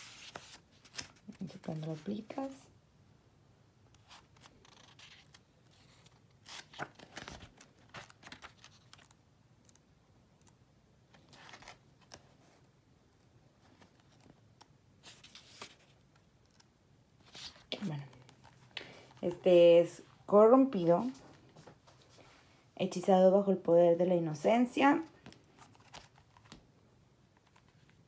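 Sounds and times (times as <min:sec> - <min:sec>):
book pages turning: 0:00.0 - 0:02.3, 0:03.9 - 0:09.8, 0:10.4 - 0:12.7, 0:13.6 - 0:19.3, 0:25.2 - 0:26.7.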